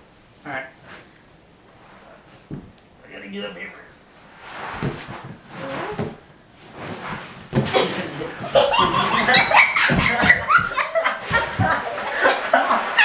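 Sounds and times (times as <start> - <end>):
soft thumps and rustles: 2.2 - 2.8, 4.4 - 11.9
people laughing: 7.7 - 13.0.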